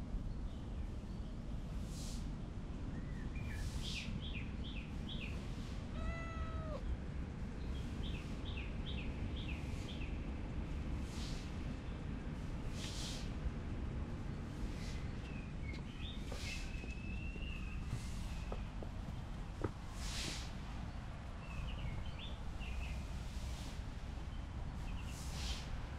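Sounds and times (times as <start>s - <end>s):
low outdoor rumble: 0.0s - 25.9s
cat meowing: 5.9s - 6.9s.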